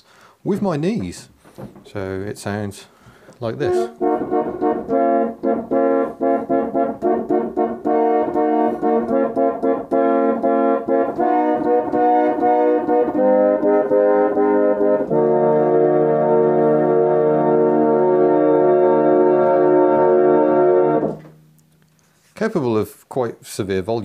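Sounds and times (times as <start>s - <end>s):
reed organ playing chords: 3.4s - 21.4s
deep bass organ note: 3.6s - 21.4s.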